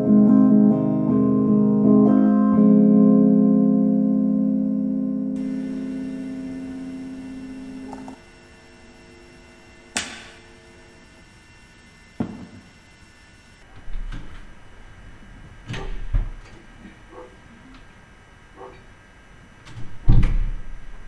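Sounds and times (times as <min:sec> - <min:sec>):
sharp knocks or cracks: 0:10.0 - 0:10.4.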